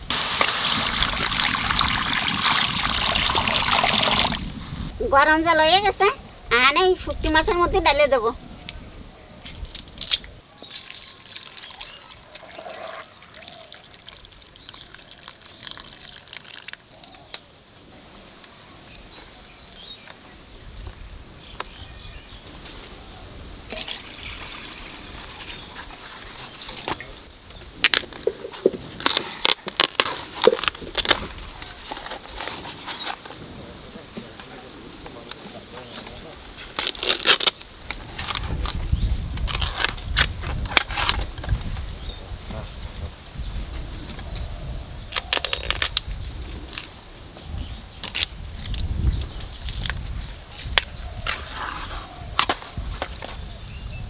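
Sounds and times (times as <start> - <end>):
bamboo sheaths snapping and cracking: 9.4 - 11.1, 27.8 - 32.5, 36.6 - 41.5, 45.1 - 46.1, 48.0 - 51.4.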